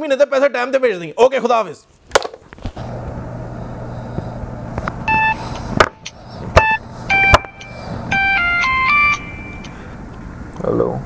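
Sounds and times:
telephone ringing melody: 0:05.0 - 0:09.9
sharp knocks: 0:05.8 - 0:07.6.

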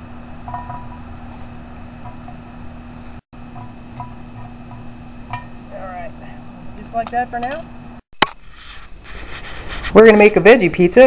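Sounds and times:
steady low hum: 0:00.0 - 0:09.9.

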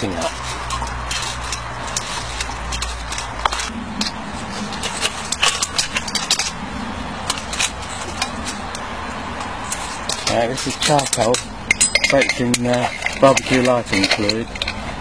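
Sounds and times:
light metallic clicks and clinks: 0:10.1 - 0:14.9.

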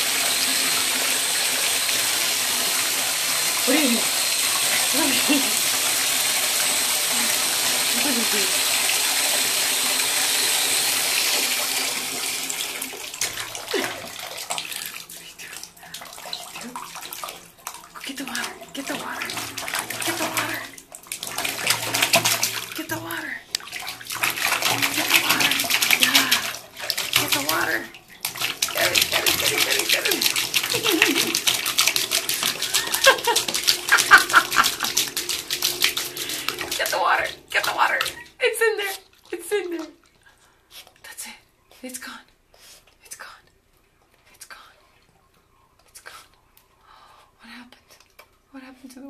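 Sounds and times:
tap running into water: 0:00.0 - 0:40.1
puppy splashing in water: 0:02.1 - 0:06.4, 0:12.5 - 0:40.2.

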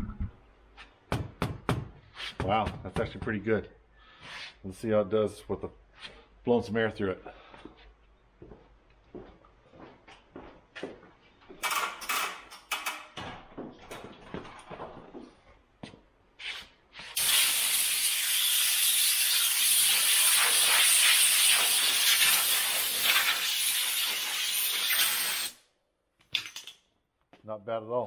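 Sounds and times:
compressed air blow gun hissing: 0:17.2 - 0:25.6.

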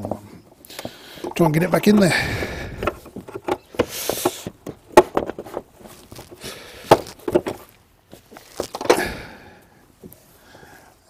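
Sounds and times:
scraping rustle: 0:00.0 - 0:09.1
plastic parts knocking and clicking: 0:00.7 - 0:09.2.

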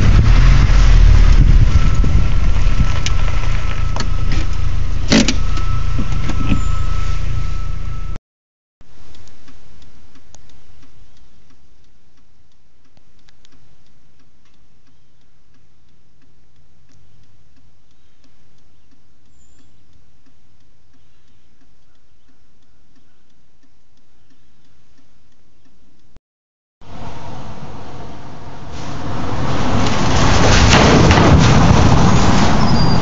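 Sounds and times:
hazard flasher relay ticking: 0:08.9 - 0:26.2.

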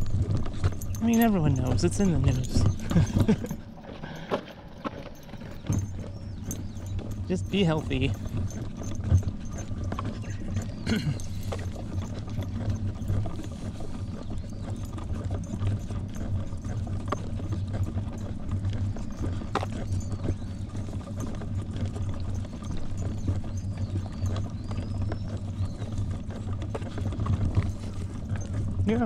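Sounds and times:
footsteps on pavement: 0:00.0 - 0:15.5.

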